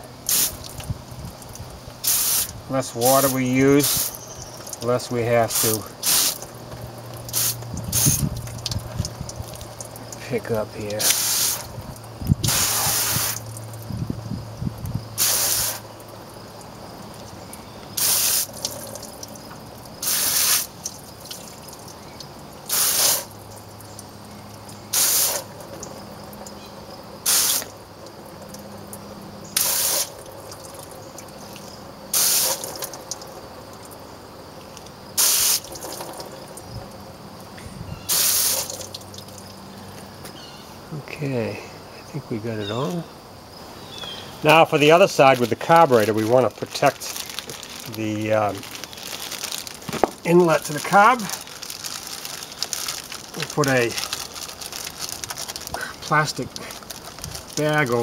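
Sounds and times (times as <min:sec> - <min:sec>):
hose spray nozzle squirts: 0:00.3 - 0:00.9, 0:02.0 - 0:02.6, 0:03.2 - 0:04.9, 0:05.5 - 0:06.5, 0:07.2 - 0:09.9, 0:11.0 - 0:11.8, 0:12.4 - 0:13.5, 0:15.2 - 0:15.8, 0:18.0 - 0:19.1, 0:20.0 - 0:21.4, 0:22.7 - 0:23.3, 0:24.9 - 0:25.5, 0:27.3 - 0:27.7, 0:29.6 - 0:30.2, 0:32.1 - 0:33.0, 0:35.2 - 0:36.1, 0:38.1 - 0:39.0.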